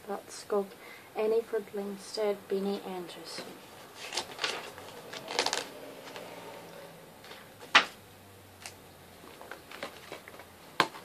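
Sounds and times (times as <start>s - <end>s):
paper rustle: 3.8s - 6.3s, 8.6s - 11.0s.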